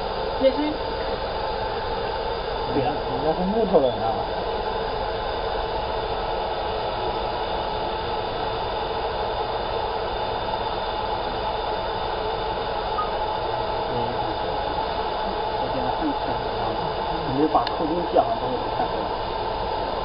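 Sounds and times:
laser engraver whirring hiss: 0:00.0 - 0:20.0
faint level tones: 0:12.9 - 0:13.3.

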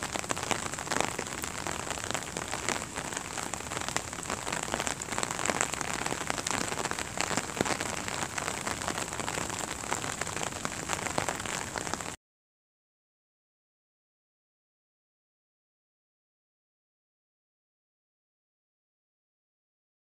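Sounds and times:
rain on paving and leaves: 0:00.0 - 0:12.2.

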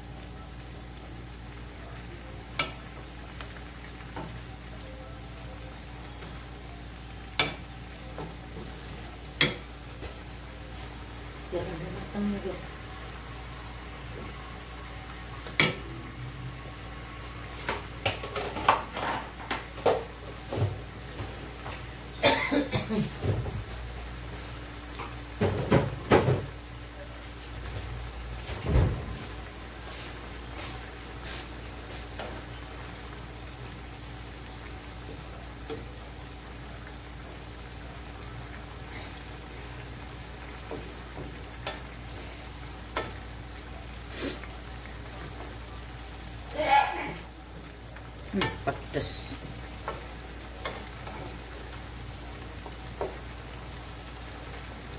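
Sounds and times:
food simmering and sizzling in pan: 0:00.0 - 0:54.9
pots and utensils clinking: 0:17.7 - 0:20.8.

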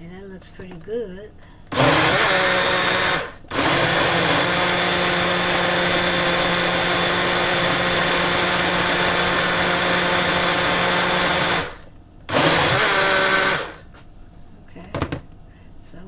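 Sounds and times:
blender motor running: 0:01.7 - 0:13.8.

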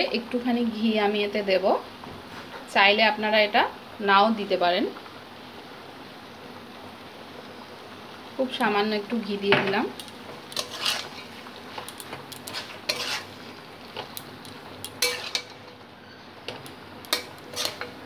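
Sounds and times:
metal spatula scraping a pan: 0:10.4 - 0:11.5, 0:12.3 - 0:13.5, 0:14.8 - 0:18.0.

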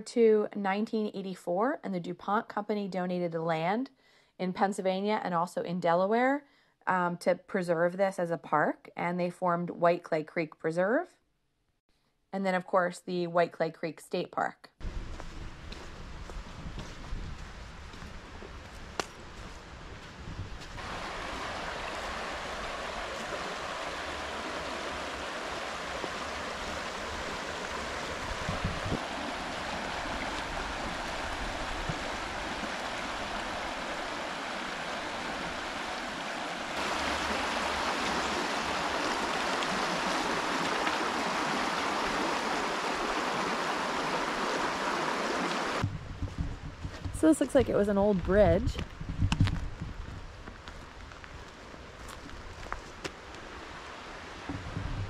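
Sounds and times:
stream rushing over rocks: 0:20.8 - 0:45.8, 0:52.0 - 0:54.9.

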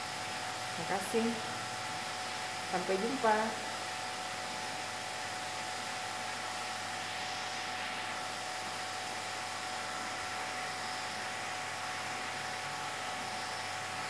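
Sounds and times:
faint constant hum: 0:00.0 - 0:14.0
hiss of running equipment: 0:00.0 - 0:14.0.

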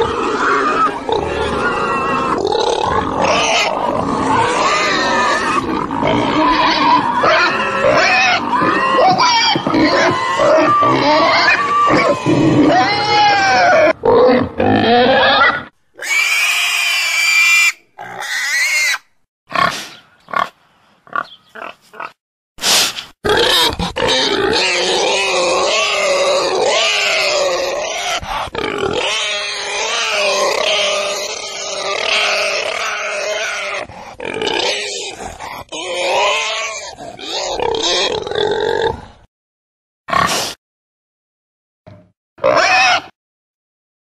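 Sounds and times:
pigs grunting: 0:00.0 - 0:17.2, 0:21.1 - 0:22.2, 0:23.2 - 0:39.2, 0:42.4 - 0:43.1
pig squealing: 0:00.0 - 0:19.7, 0:21.1 - 0:22.2, 0:23.2 - 0:38.9, 0:40.1 - 0:40.5, 0:42.4 - 0:43.2.

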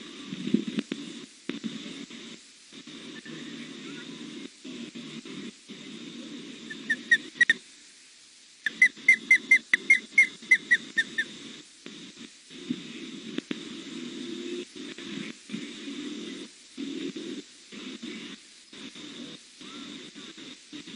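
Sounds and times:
young osprey chirping: 0:06.7 - 0:07.6, 0:08.7 - 0:11.3.

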